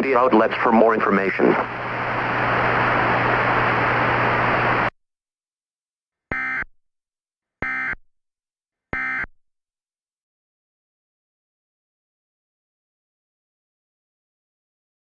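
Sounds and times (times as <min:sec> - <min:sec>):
static hiss with low hum: 0:00.0 - 0:04.9.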